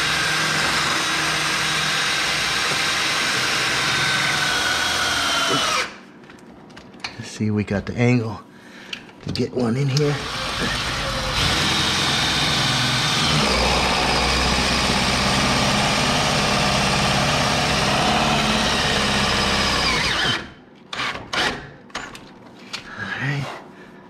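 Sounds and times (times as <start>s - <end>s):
power drill driving a screw: 0.0s - 6.0s, 10.2s - 21.6s.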